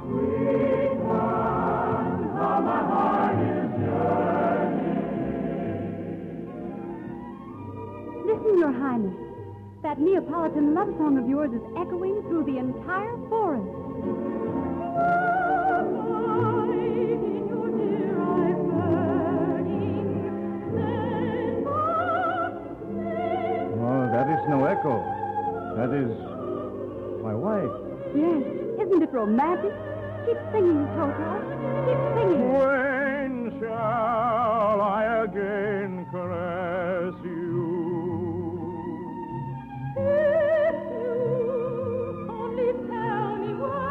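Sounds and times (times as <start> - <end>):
orchestral accompaniment: 0.0 - 43.9
operetta singing with vibrato: 9.9 - 43.9.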